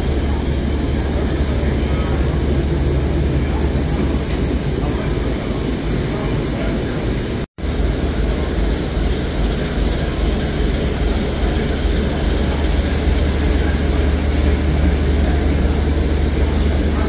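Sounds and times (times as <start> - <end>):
low rumble: 0.0 - 6.3
steam locomotive hissing: 0.0 - 17.0.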